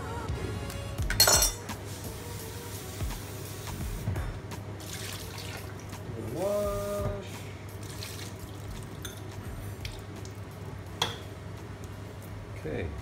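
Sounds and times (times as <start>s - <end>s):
running water from a tap: 4.8s - 5.9s, 7.8s - 9.2s.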